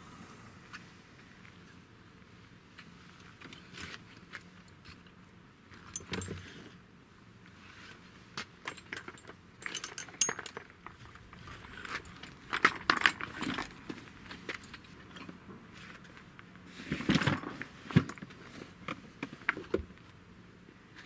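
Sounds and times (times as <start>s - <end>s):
clicks and clinks of handling: 3.4s - 6.5s, 8.4s - 16.3s.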